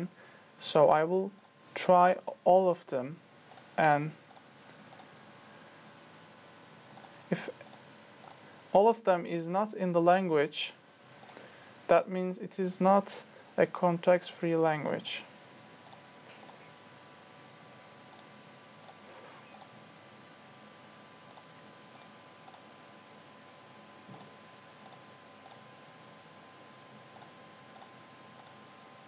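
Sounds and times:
low steady hum: 0:00.0 - 0:29.0
computer mouse clicks: 0:03.5 - 0:03.7, 0:04.3 - 0:05.1, 0:07.0 - 0:08.4, 0:11.2 - 0:11.4, 0:15.8 - 0:16.7, 0:18.1 - 0:19.8, 0:21.3 - 0:22.7, 0:24.1 - 0:25.6, 0:27.0 - 0:28.6.

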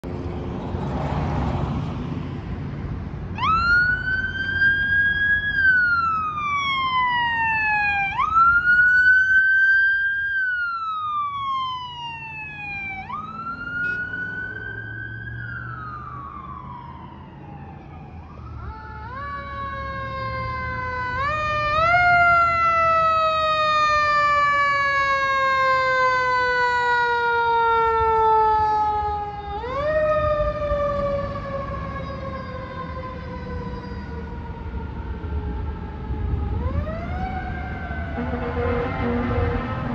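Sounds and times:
low rumble of traffic: 0:00.0 - 0:39.9
fire engine siren: 0:03.3 - 0:39.9
wailing siren: 0:03.3 - 0:39.9.

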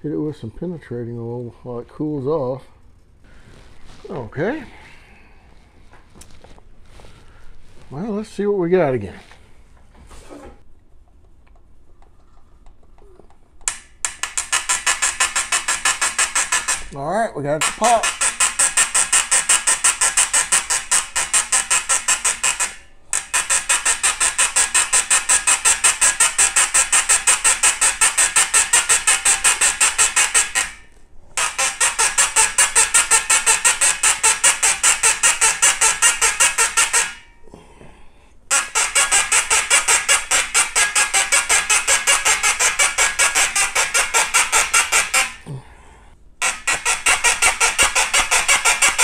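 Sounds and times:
brass tube squeaking: 0:13.7 - 0:37.4, 0:38.5 - 0:45.6, 0:46.4 - 0:49.0.

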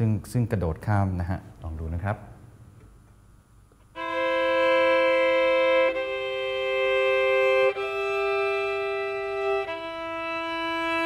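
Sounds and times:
violin playing double stops: 0:04.0 - 0:11.0.

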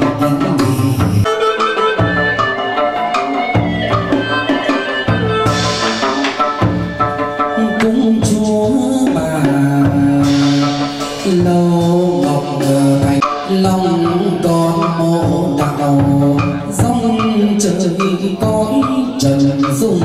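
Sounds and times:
melody in long held notes: 0:00.0 - 0:18.4
steady percussion beat: 0:00.0 - 0:20.0.

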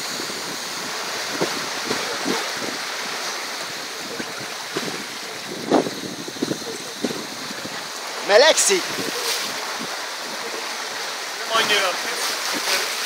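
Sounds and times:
wind over microphone: 0:00.0 - 0:08.0, 0:08.7 - 0:10.5
water rushing past hull: 0:00.0 - 0:13.0.

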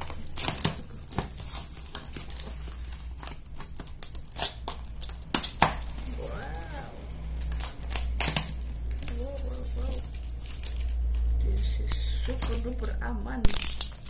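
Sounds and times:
paper ripping: 0:00.0 - 0:12.9
paper crackling and rustling: 0:00.0 - 0:14.0
person humming: 0:06.1 - 0:07.1.

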